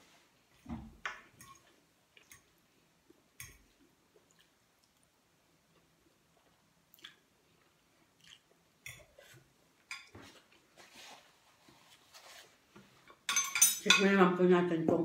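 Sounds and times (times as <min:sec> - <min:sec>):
person chewing: 0:04.1 - 0:09.4
paper napkin rustling: 0:10.3 - 0:12.7.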